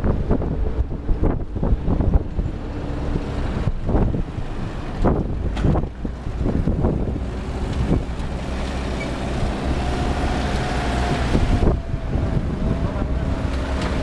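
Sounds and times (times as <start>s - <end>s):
car engine and road noise: 0.0s - 14.0s.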